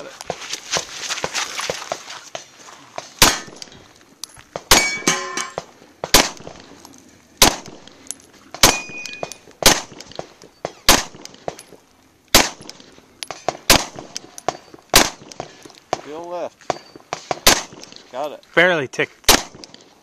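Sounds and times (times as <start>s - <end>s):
pistol shots: 3.2s - 3.8s, 4.6s - 6.7s, 7.4s - 8.0s, 8.6s - 11.6s, 12.3s - 16.1s, 16.7s - 18.0s, 19.3s - 19.9s
steel targets clanging: 4.7s - 5.7s, 8.0s - 9.5s.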